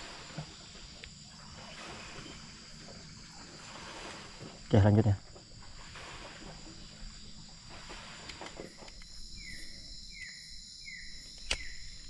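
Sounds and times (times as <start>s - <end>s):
insects high-pitched ringing: 0.0s - 12.0s
sharp click: 11.4s - 11.8s.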